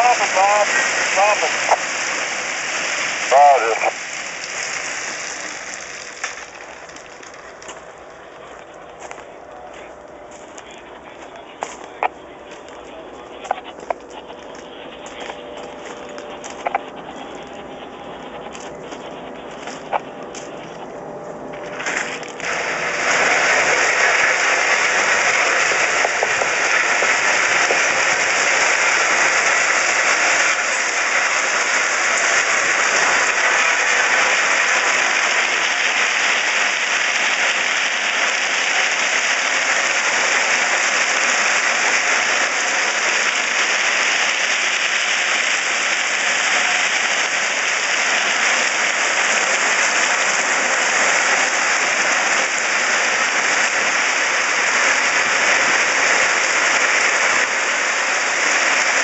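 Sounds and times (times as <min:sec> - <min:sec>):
stones rattling and scraping: 0:04.3 - 0:07.9.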